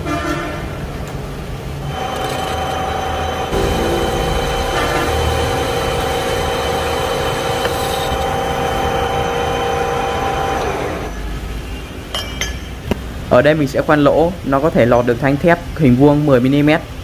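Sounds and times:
metal lathe whining: 1.8 - 11.2.

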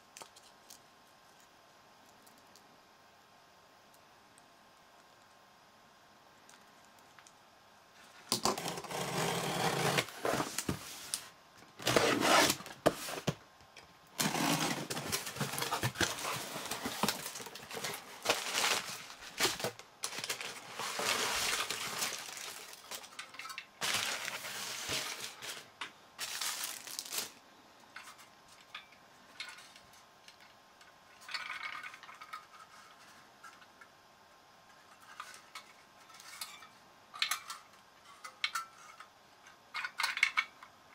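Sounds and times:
paper and foil bag crinkling: 14.2 - 27.4.

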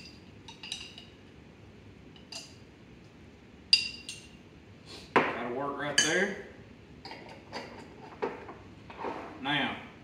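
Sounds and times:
metal spoon clinking on glass jar: 0.0 - 1.2, 3.7 - 4.4, 6.0 - 6.3.

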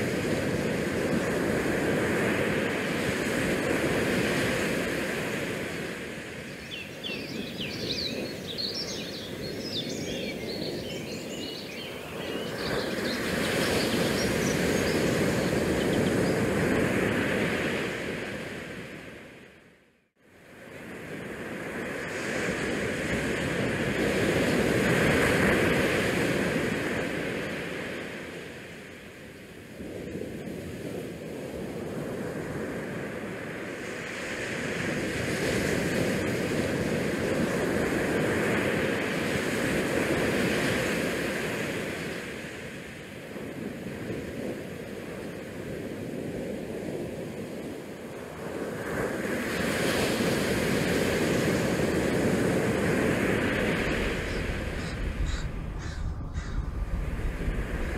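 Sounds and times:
wind rushing over microphone: 0.0 - 19.4, 20.6 - 57.9.

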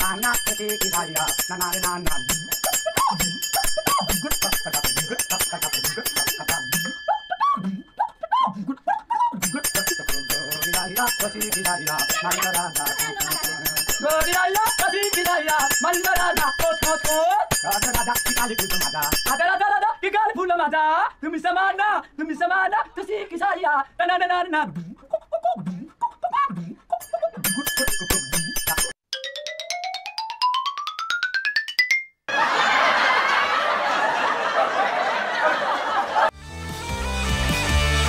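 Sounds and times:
music with fast beat and bells: 0.0 - 7.8, 9.4 - 19.6, 27.0 - 32.2
man singing: 3.9 - 6.9, 9.4 - 25.0.

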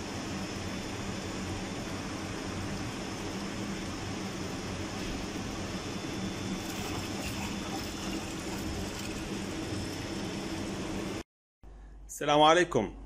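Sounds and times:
circulation pump hum: 0.0 - 13.0
liquid pouring and foaming: 6.5 - 10.0.

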